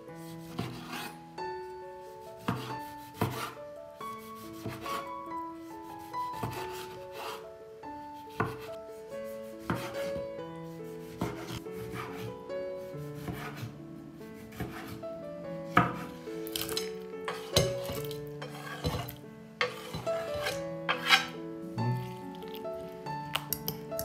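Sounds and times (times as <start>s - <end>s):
soft background music: 0.0s - 24.0s
knife chopping on wooden board: 2.4s - 3.6s, 8.3s - 8.7s, 9.6s - 10.2s, 11.1s - 12.3s, 13.2s - 13.7s, 14.5s - 15.0s, 15.7s - 21.3s.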